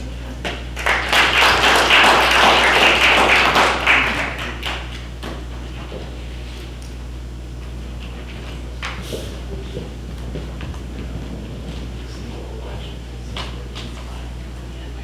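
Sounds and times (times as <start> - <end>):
audience applauding: 0.7 - 5.1.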